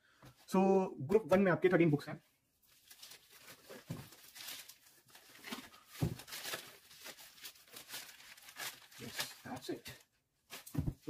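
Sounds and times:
plastic wrap crinkling: 0:02.6 - 0:10.9
books thumping: 0:06.0 - 0:06.3, 0:10.6 - 0:11.0.

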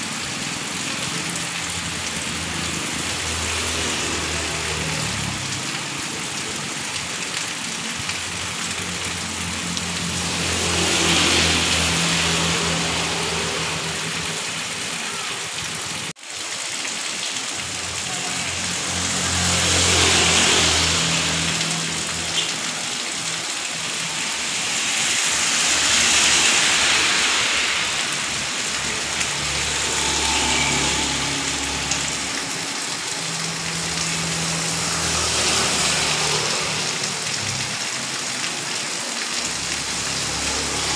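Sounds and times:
heavy rain on a street: 0:00.0 - 0:40.9
motorbikes passing on wet road: 0:00.0 - 0:40.9.

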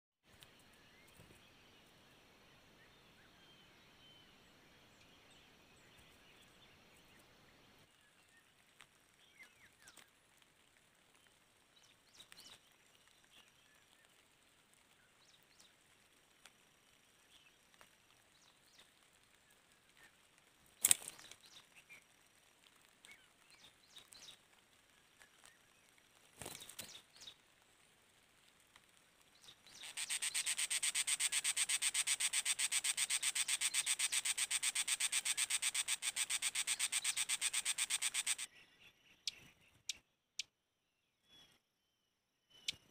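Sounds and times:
bird wings fluttering: 0:12.2 - 0:38.5.

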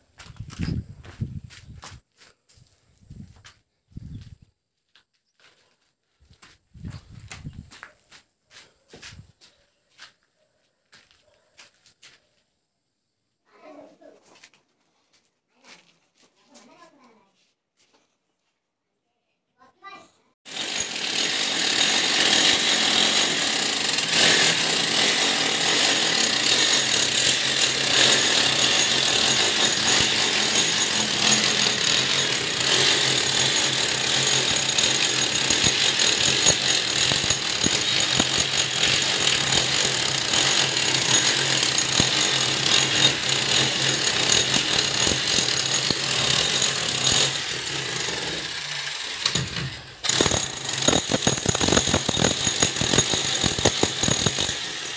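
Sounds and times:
power tool cutting brick: 0:20.5 - 0:54.9.

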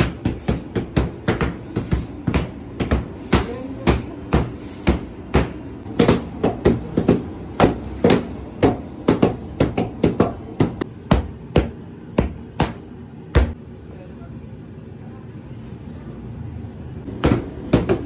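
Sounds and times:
mallets pounding on stone: 0:00.0 - 0:12.8, 0:17.1 - 0:18.0.

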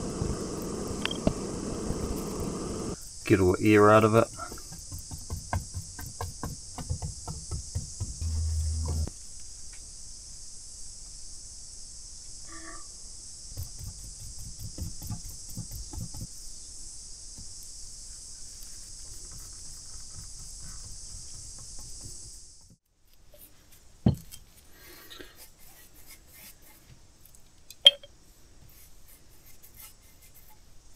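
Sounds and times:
insect chorus: 0:00.0 - 0:22.8
brush dabbing and tapping: 0:03.9 - 0:09.1, 0:13.6 - 0:16.4.

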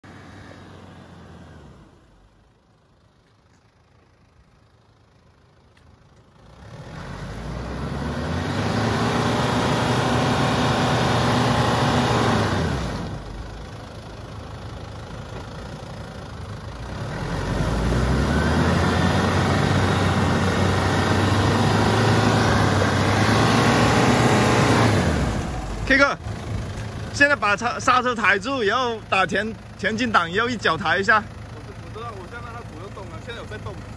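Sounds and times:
diesel engine revving hard: 0:00.0 - 0:02.3, 0:06.4 - 0:13.7, 0:16.6 - 0:33.9.

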